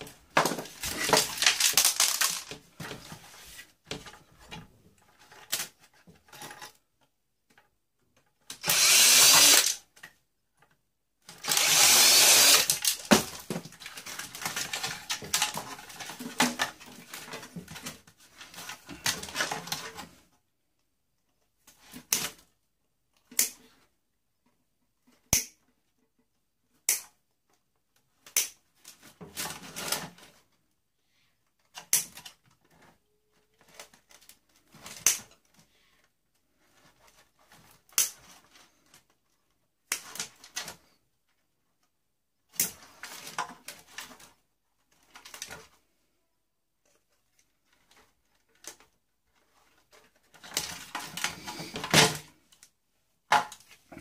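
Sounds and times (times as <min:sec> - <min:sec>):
small parts clicking and rattling: 0:00.4 - 0:02.7, 0:08.4 - 0:10.1, 0:11.3 - 0:17.8
power drill running: 0:08.6 - 0:09.8, 0:11.4 - 0:13.0.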